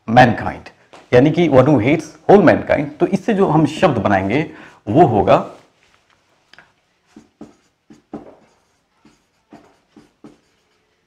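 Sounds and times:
marker pen on whiteboard: 0:05.3 - 0:11.0.

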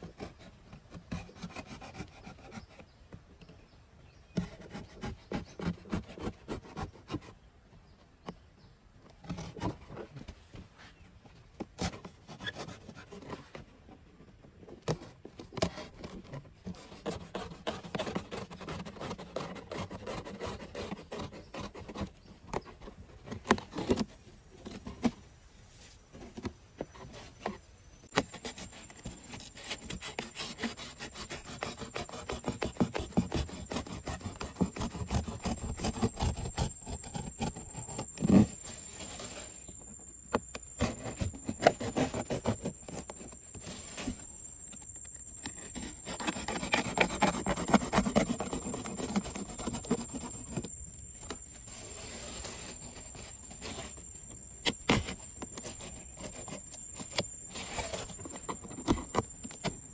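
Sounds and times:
knife sawing cardboard: 0:00.0 - 0:02.9, 0:04.3 - 0:07.4, 0:11.8 - 0:13.5, 0:14.9 - 0:25.1, 0:28.1 - 0:44.3, 0:45.5 - 0:50.8, 0:51.6 - 0:59.9.

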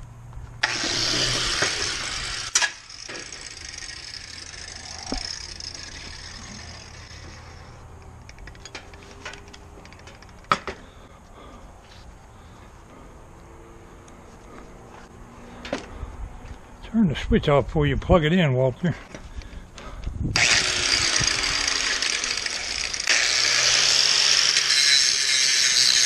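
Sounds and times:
angle grinder running: 0:00.6 - 0:08.0, 0:20.3 - 0:26.0.

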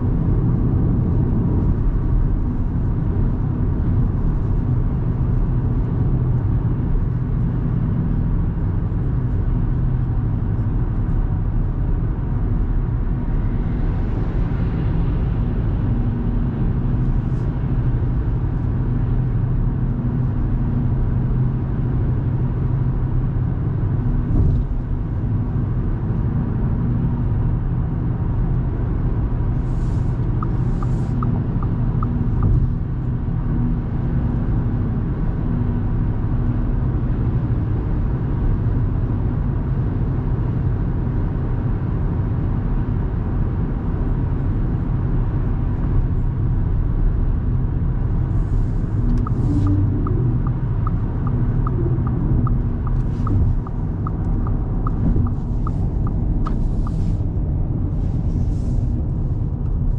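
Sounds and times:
car engine humming: 0:29.4 - 0:33.4, 0:47.7 - 0:59.9
tyre and road rumble: 0:47.3 - 0:59.9.

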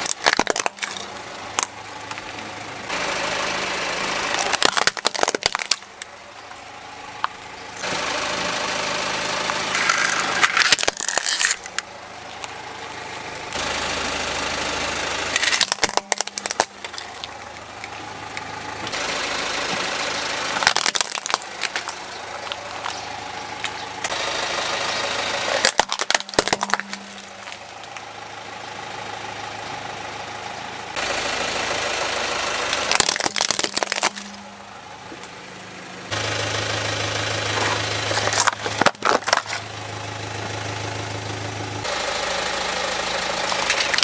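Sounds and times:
plastic cracking and snapping: 0:00.0 - 0:02.2, 0:04.3 - 0:06.1, 0:09.8 - 0:11.8, 0:15.4 - 0:18.5, 0:20.6 - 0:23.0, 0:25.6 - 0:28.0, 0:32.8 - 0:34.4, 0:38.2 - 0:39.6, 0:43.5 - 0:44.0
car engine running: 0:00.0 - 0:44.0.

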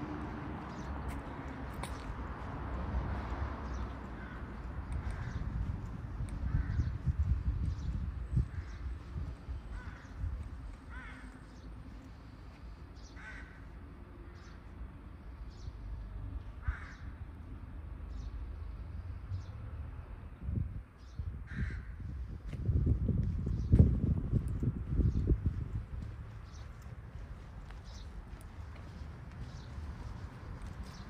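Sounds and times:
crows cawing: 0:04.0 - 0:05.5, 0:06.4 - 0:06.9, 0:08.4 - 0:09.0, 0:09.7 - 0:10.2, 0:10.8 - 0:11.6, 0:13.0 - 0:13.8, 0:16.6 - 0:17.2, 0:21.4 - 0:22.0.

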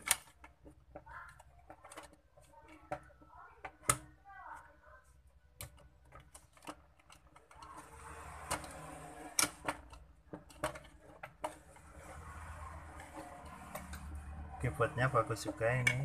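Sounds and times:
plastic clicks and knocks: 0:00.0 - 0:04.1, 0:05.6 - 0:12.0
steady background noise: 0:00.0 - 0:16.0.

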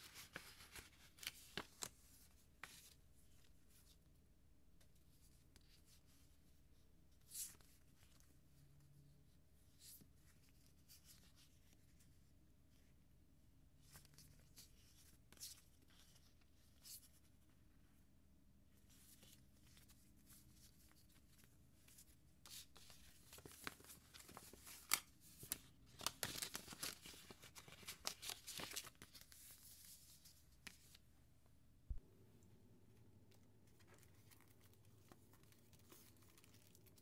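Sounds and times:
paper sticker sheets rustling: 0:00.0 - 0:02.0, 0:18.9 - 0:31.0.

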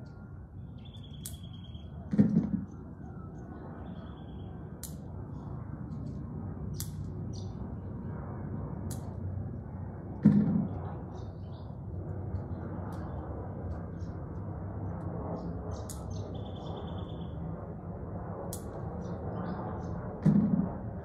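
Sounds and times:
birds chirping: 0:00.0 - 0:02.1
low rumble: 0:00.0 - 0:21.0.

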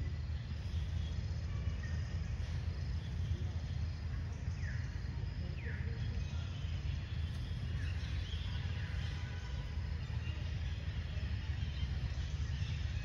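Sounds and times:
faint insect hum: 0:00.0 - 0:13.0.

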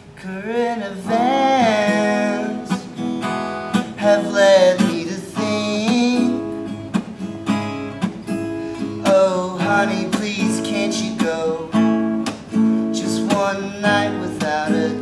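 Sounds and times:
acoustic guitar strummed and picked: 0:00.0 - 0:15.0
man singing: 0:00.2 - 0:03.0, 0:03.7 - 0:06.5, 0:09.0 - 0:11.9, 0:12.8 - 0:15.0.

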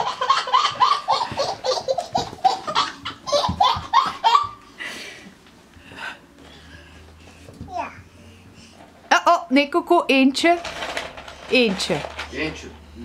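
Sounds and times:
baby laughing: 0:00.0 - 0:04.6.

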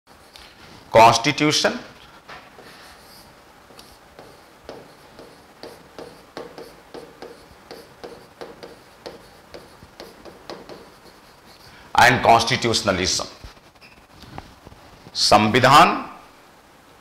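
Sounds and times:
pen scratching on board: 0:02.6 - 0:11.7.

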